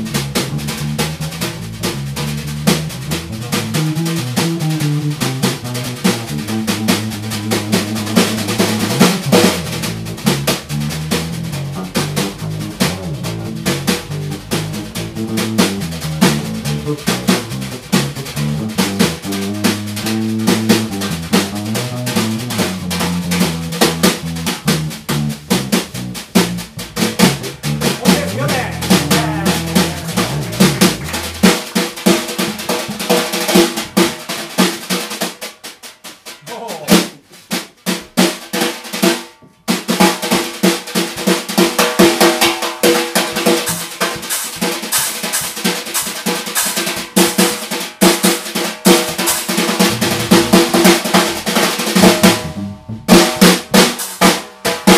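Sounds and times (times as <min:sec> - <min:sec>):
electric bass line: 0:00.0 - 0:31.7, 0:49.8 - 0:53.6
drum kit with snare rolls: 0:00.0 - 0:54.9.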